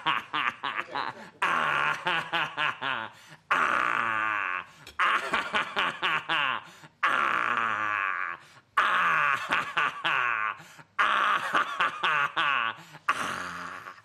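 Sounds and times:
person laughing helplessly: 0.0s - 14.0s.

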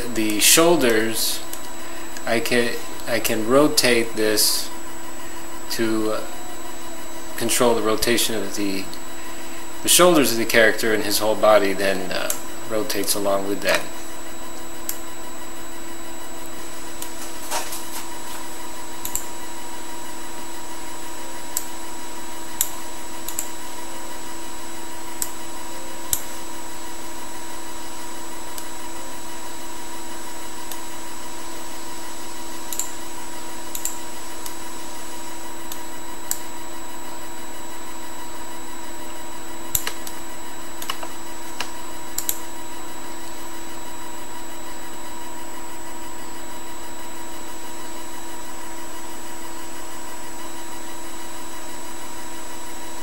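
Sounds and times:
electrical hum: 0.0s - 53.0s
computer mouse clicks: 19.0s - 19.2s, 33.7s - 34.6s, 39.8s - 40.2s, 40.8s - 42.4s.

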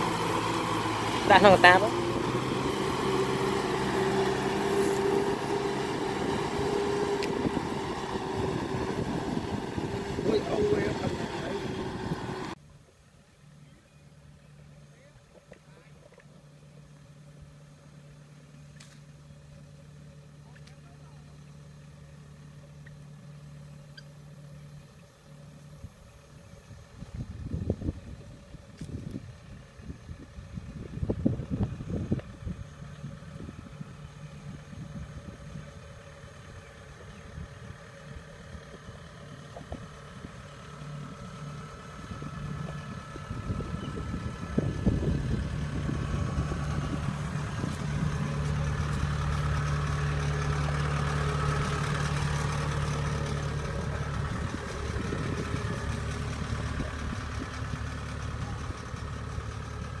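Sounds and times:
diesel engine running: 0.0s - 12.6s, 13.3s - 60.0s.

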